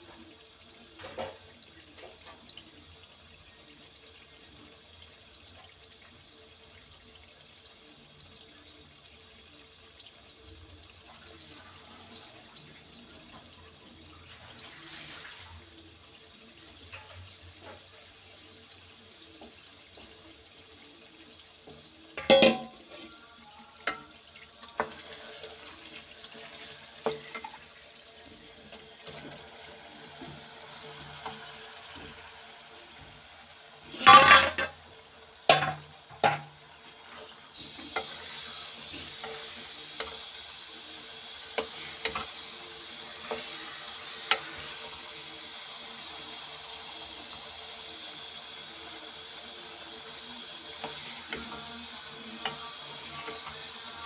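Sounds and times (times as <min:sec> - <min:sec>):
vegetables sizzling: 0:11.1 - 0:54.0
spatula knocking metal pot: 0:22.2 - 0:22.8
vegetables clattering into pot: 0:22.2 - 0:23.0, 0:33.9 - 0:34.8.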